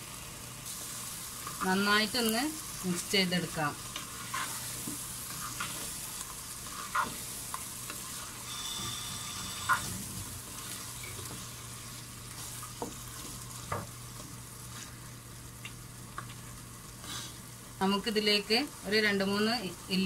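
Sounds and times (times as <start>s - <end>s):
chicken sizzling in a pan: 0.0s - 20.0s
wooden spatula scraping: 3.8s - 15.0s, 17.0s - 17.4s.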